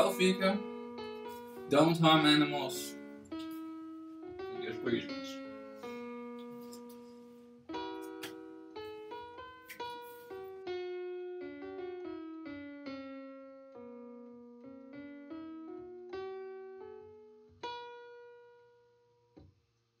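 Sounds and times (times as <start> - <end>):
slow piano melody: 0.0 - 19.5.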